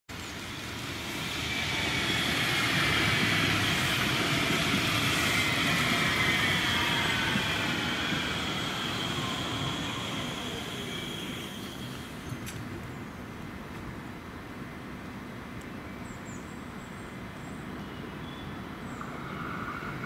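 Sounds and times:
tram wheels rumbling on rail: 0.1s - 14.8s, 18.6s - 20.0s
high whining tones: 1.1s - 12.4s.

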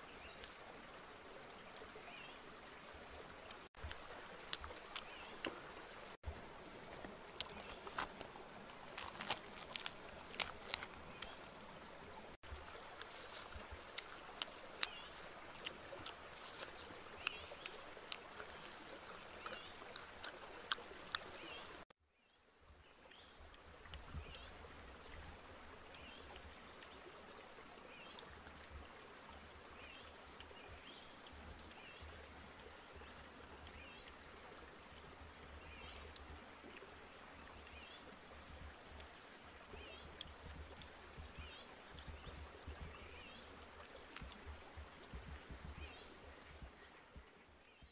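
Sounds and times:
stream flowing: 0.0s - 21.9s, 22.5s - 47.9s
chewing crunchy food: 3.8s - 5.6s, 6.9s - 11.5s, 12.4s - 21.9s.

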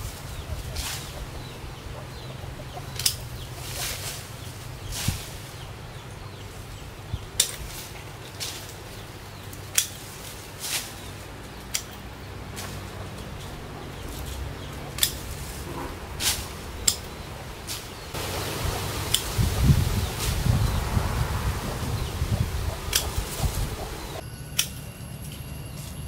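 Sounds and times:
pruning shears snipping: 2.1s - 5.4s, 7.3s - 20.5s, 22.0s - 26.0s.

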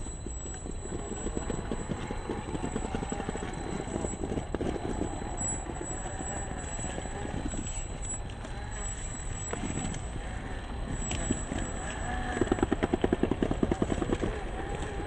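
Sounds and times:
electric motor whining: 0.0s - 15.0s
rapid chatter of gears and tyres: 0.0s - 15.0s.

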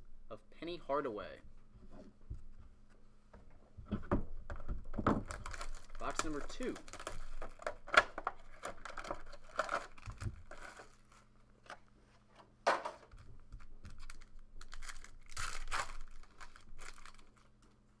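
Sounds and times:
plastic crinkling: 4.9s - 11.4s, 13.1s - 17.8s
plastic shrink-wrap tearing: 5.2s - 11.3s, 13.2s - 17.6s.

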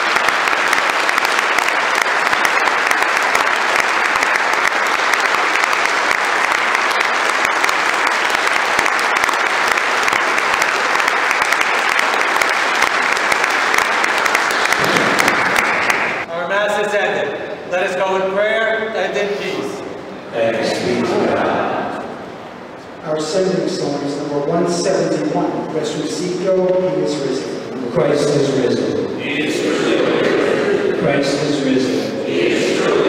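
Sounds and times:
crowd applauding: 0.0s - 16.3s.

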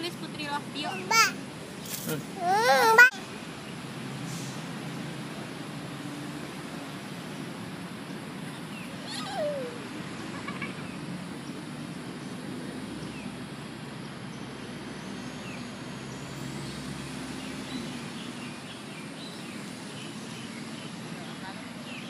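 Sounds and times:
toddler squealing: 0.9s - 1.4s, 2.4s - 3.2s, 9.1s - 9.9s.

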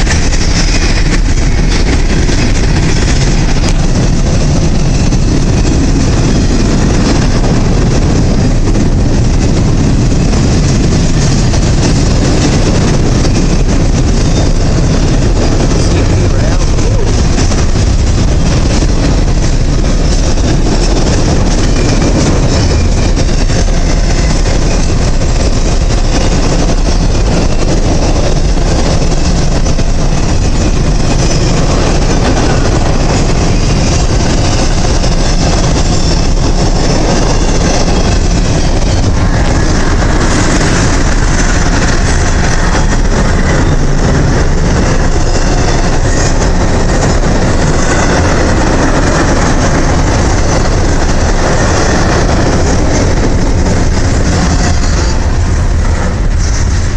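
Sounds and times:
freight train wheels on rails: 0.0s - 56.9s.

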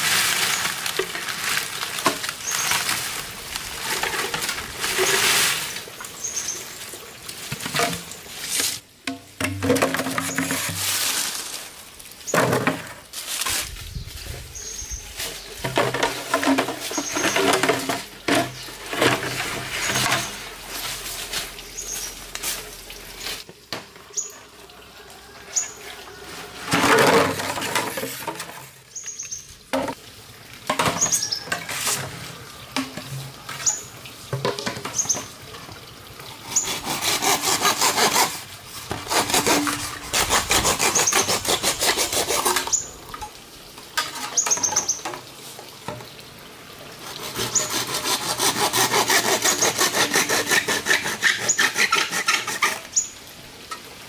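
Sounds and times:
hand sawing bamboo: 36.4s - 42.8s, 47.0s - 52.9s.

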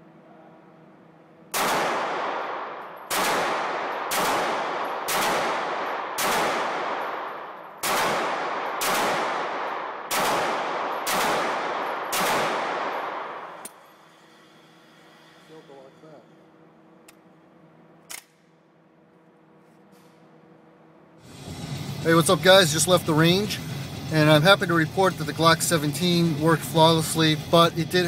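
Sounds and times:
pistol shots with echo: 1.5s - 13.7s.

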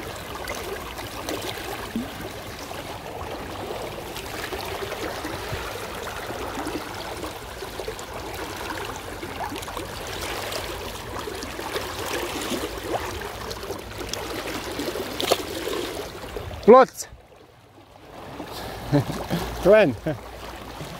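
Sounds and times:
river water flowing over stones: 0.0s - 20.9s.

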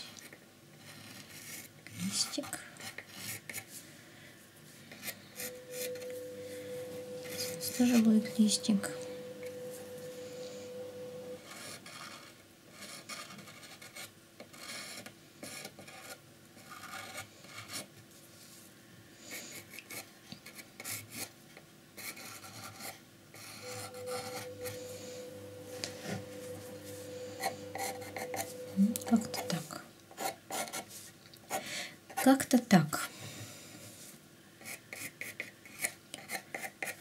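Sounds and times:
pencil scratching on a box: 0.7s - 3.7s, 11.4s - 17.9s, 19.5s - 21.3s, 22.0s - 24.8s, 27.4s - 28.5s, 30.2s - 32.4s, 34.6s - 37.0s.

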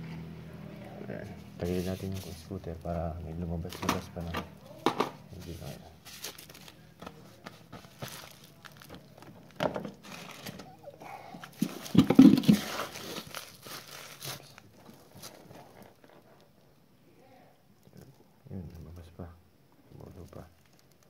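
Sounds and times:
scooter knocking and rattling: 11.6s - 12.7s.

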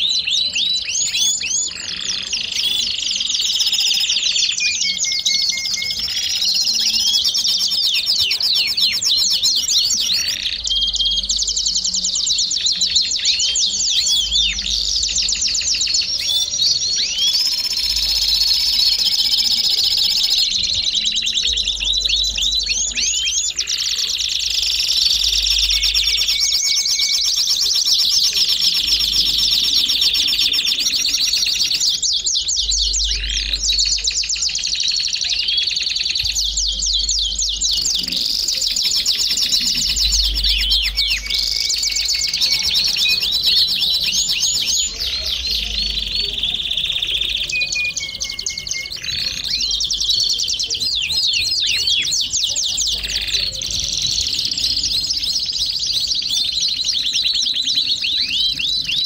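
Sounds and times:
canary singing trills: 0.0s - 59.0s.

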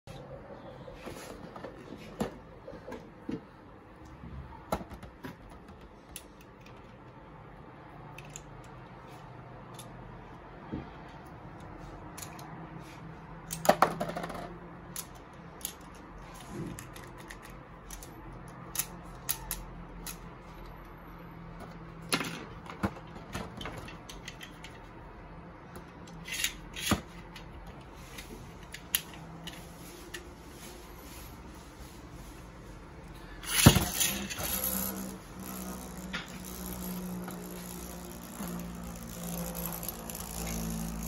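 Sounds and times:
plastic and metal toy parts clicking: 8.1s - 8.8s, 12.1s - 12.5s, 14.9s - 16.1s, 16.7s - 20.7s, 26.0s - 27.5s, 33.4s - 41.0s.

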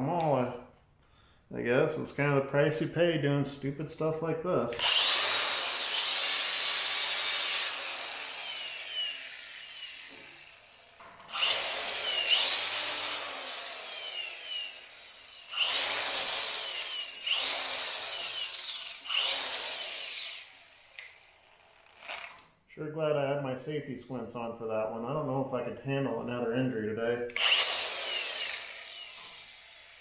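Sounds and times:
angle grinder grinding steel: 4.8s - 22.5s, 27.4s - 30.0s.

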